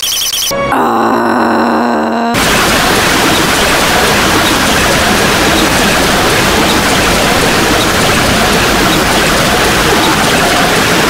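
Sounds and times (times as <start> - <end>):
harsh distorted noise: 2.4 - 11.0.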